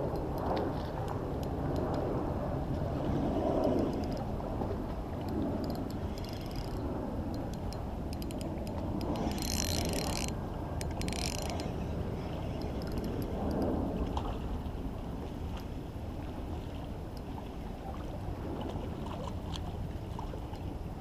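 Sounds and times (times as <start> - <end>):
wind: 0.0 - 21.0
fishing reel gears ticking: 3.7 - 4.3, 5.6 - 13.6.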